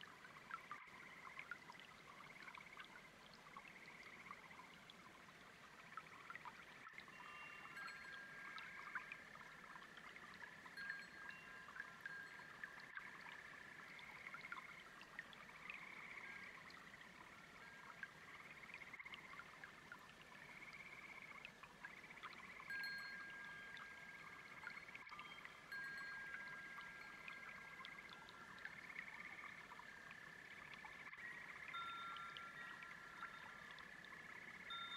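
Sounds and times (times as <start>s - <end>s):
babbling brook: 0.0s - 34.9s
frogs and insects trilling: 0.1s - 34.9s
wind chimes ringing: 7.1s - 9.1s, 10.7s - 12.8s, 22.7s - 27.8s, 31.2s - 33.5s, 34.7s - 34.9s.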